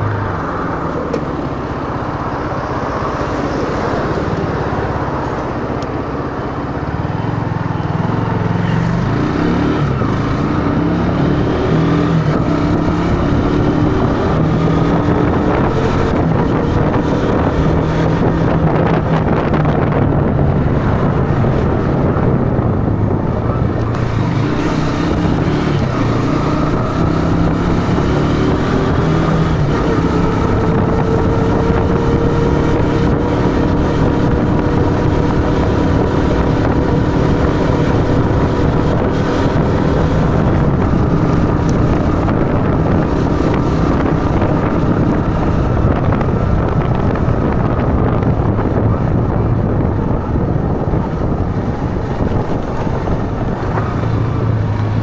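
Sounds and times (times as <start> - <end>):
motorcycle engine accelerating: 0.0 - 55.0
wind noise on microphone: 0.0 - 55.0.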